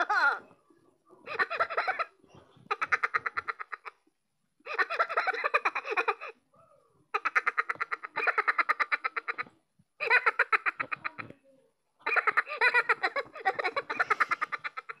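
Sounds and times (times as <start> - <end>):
toy high-pitched cackling laughter: 1.2 - 4.1, 4.7 - 6.4, 7.1 - 11.3, 12.0 - 15.0.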